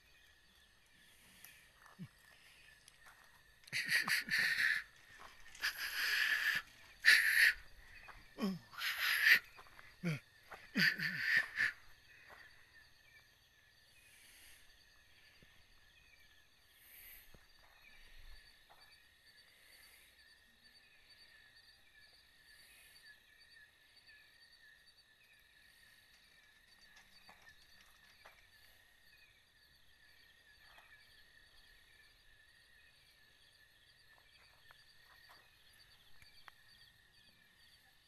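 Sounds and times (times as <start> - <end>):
crickets chirping: 0.0 - 38.0
person shushing: 3.7 - 4.9, 5.6 - 7.6, 8.4 - 10.2, 10.8 - 11.8.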